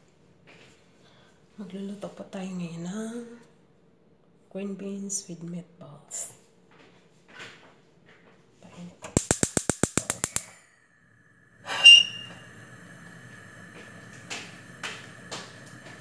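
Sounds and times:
gas igniter clicking: 9.1s - 10.6s, 11.6s - 16.0s
gas burner hissing: 9.1s - 16.0s.

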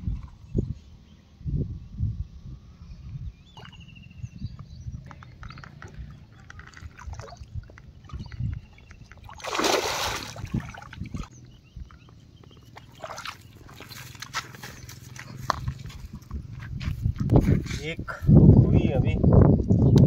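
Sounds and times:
fish splashing and thrashing: 5.0s - 11.4s, 12.5s - 16.0s.

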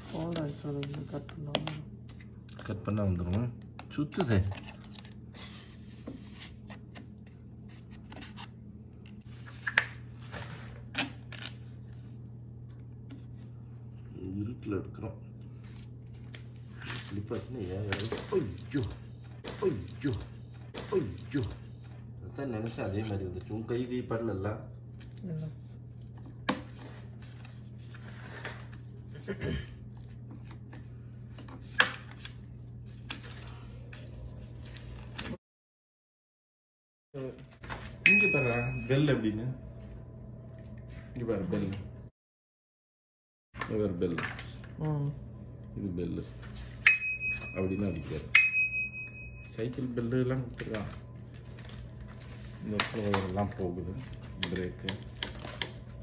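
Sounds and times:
steady low hum: 0.0s - 35.3s.

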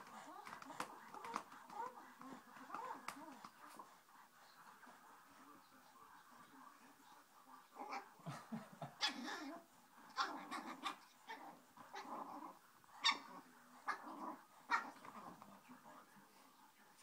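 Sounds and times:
puppy growling and yapping: 8.9s - 15.4s.

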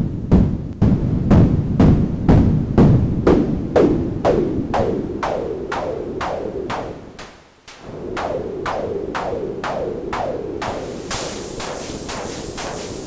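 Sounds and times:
filtered noise bursts ringing: 0.0s - 13.0s
steady hiss: 2.8s - 13.0s.

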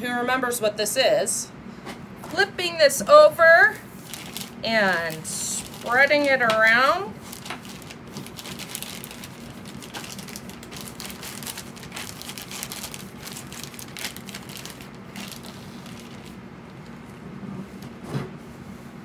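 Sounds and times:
plastic bag crinkling: 3.9s - 17.0s.

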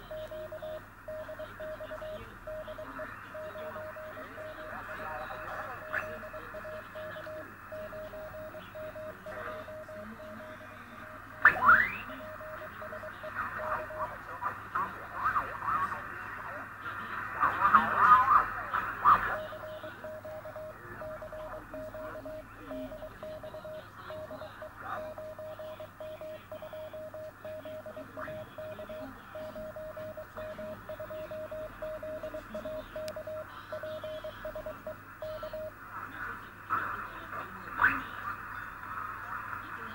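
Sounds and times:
morse code tone beeping: 0.0s - 14.1s, 19.3s - 35.8s
radio band hiss: 0.0s - 39.9s.

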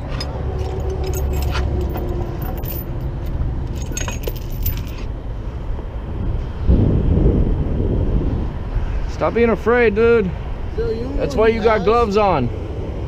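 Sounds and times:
metal jingling and clinking: 0.0s - 5.1s
low engine rumble: 0.0s - 13.0s.

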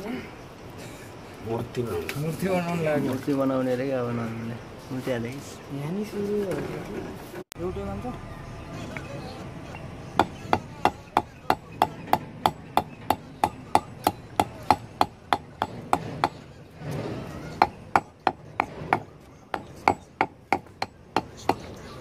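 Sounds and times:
hammer knocking on lead rod: 10.2s - 16.4s.

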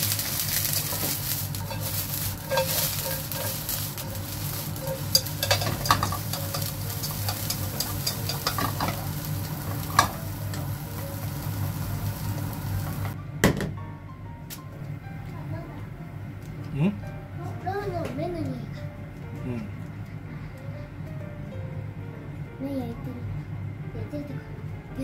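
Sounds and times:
bean sprouts sizzling in frying pan: 0.0s - 13.2s
chopsticks scraping a pan: 0.0s - 13.2s
steady low hum: 0.0s - 25.0s.

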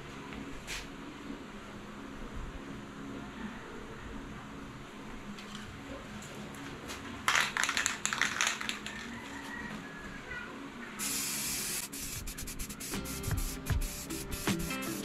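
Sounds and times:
spray can clattering: 11.0s - 15.0s
spray paint hissing: 11.0s - 15.0s.

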